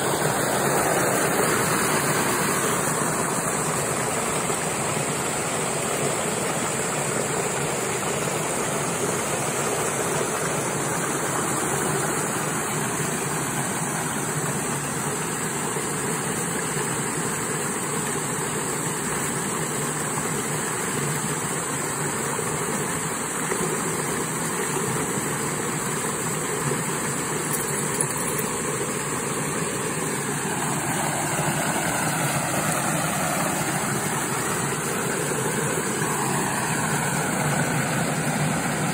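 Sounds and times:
water rushing down a channel: 0:00.0 - 0:38.9.

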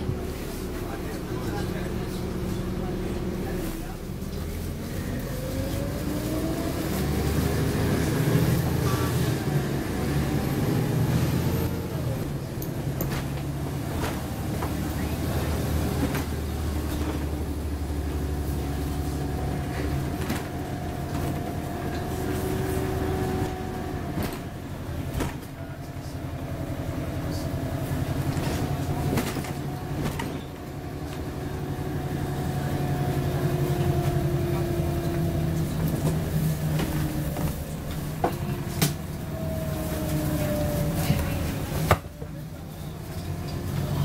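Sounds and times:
bus diesel engine rumble: 0:00.0 - 0:44.0
engine whine rising in pitch: 0:30.5 - 0:41.8.

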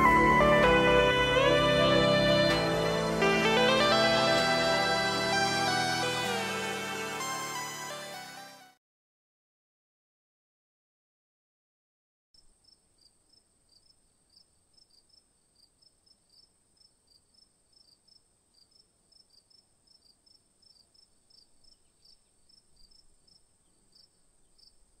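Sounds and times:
crickets chirping: 0:12.4 - 0:25.0.

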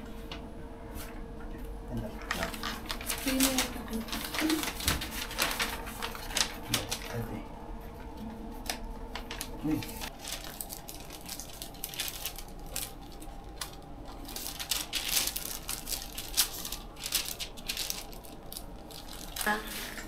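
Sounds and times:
paper crinkling and rustling: 0:02.1 - 0:20.0.

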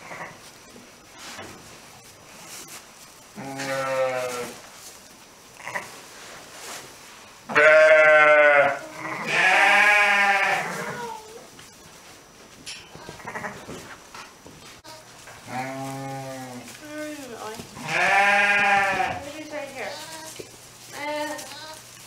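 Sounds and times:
sheep bleating: 0:03.4 - 0:04.5, 0:07.6 - 0:11.0, 0:14.9 - 0:16.6, 0:17.8 - 0:19.3.

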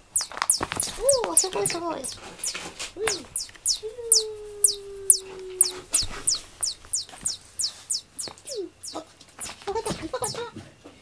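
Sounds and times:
electronic mouse toy squeaks: 0:00.0 - 0:10.4
cat meowing: 0:00.8 - 0:07.4.

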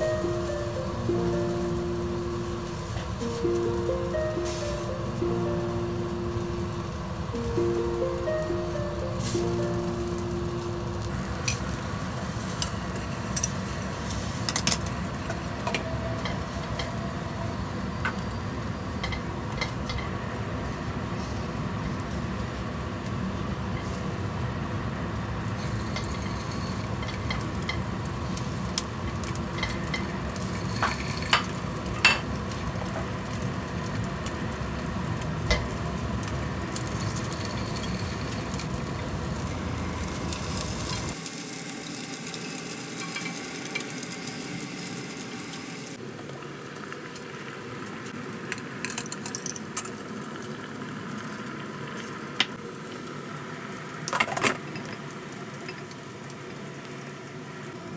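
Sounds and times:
fish sizzling in oil: 0:00.0 - 0:20.1, 0:22.2 - 0:57.8.

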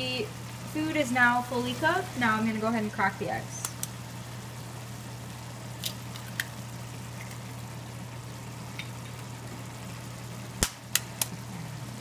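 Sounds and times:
low steady hum: 0:00.0 - 0:12.0
vegetables simmering in pan: 0:00.0 - 0:12.0
egg cracking: 0:05.7 - 0:07.6.

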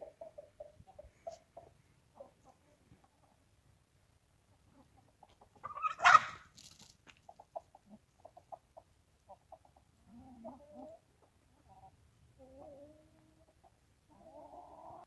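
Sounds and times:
chickens clucking softly: 0:00.0 - 0:15.0
chicken squawking: 0:05.4 - 0:06.5.

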